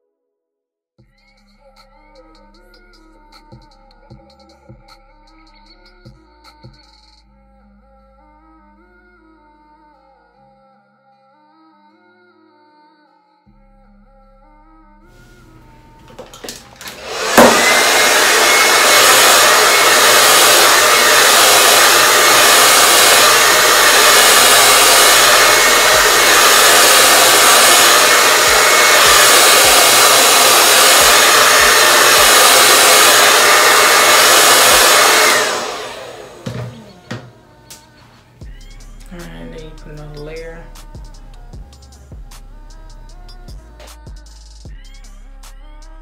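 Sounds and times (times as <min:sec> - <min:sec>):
hair dryer blowing with whine: 0:15.2 - 0:37.9, 0:39.0 - 0:41.3
hair dryer switch click: 0:16.0 - 0:19.2.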